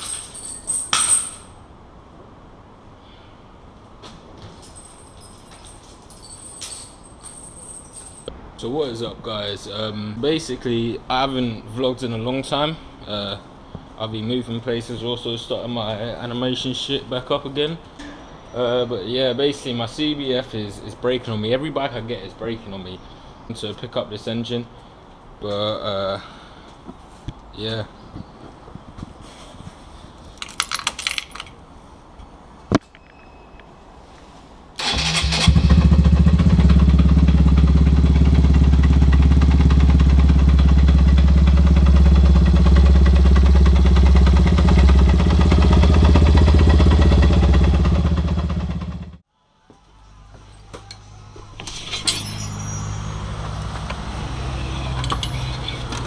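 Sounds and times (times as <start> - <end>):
motorcycle engine running: 34.9 - 49.2.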